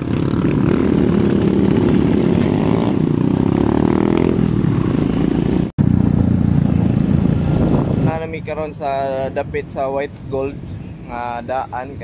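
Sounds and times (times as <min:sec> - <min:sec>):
motorcycle engine running: 0:00.0 - 0:08.3.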